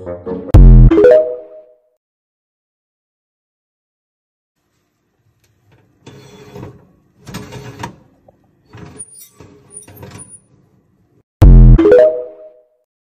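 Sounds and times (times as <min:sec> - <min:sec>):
oven rack scraping rattle: 0:05.7 - 0:10.7.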